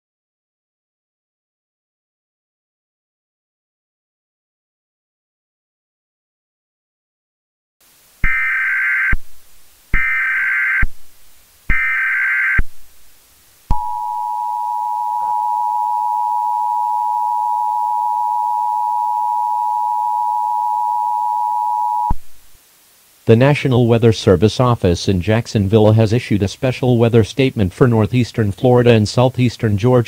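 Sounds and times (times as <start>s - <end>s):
digital data tone bursts: 8.2s - 9.2s, 10.0s - 10.9s, 11.7s - 12.7s, 13.7s - 22.2s
two-tone attention signal: 13.7s - 22.2s.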